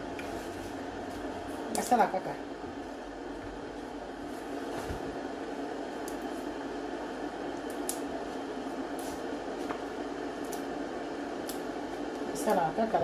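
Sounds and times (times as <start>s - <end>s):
leaves snapping and tearing: 7.5s - 8.1s, 10.4s - 10.7s, 11.4s - 11.7s.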